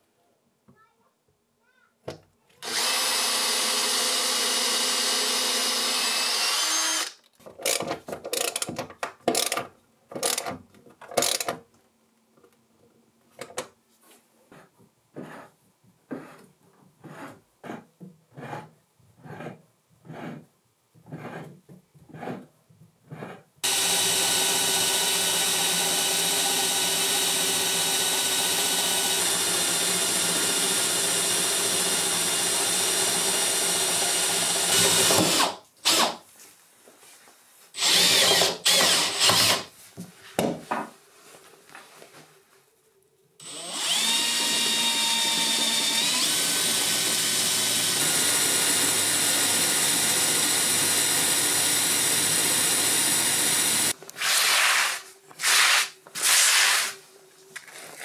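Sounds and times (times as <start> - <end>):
cordless drill drilling into metal: 2.6 - 7.8, 23.6 - 36.2, 37.8 - 39.7, 43.4 - 54.6
electric drill boring into wood: 2.6 - 7.8, 23.6 - 36.2, 37.8 - 39.7, 43.4 - 54.6.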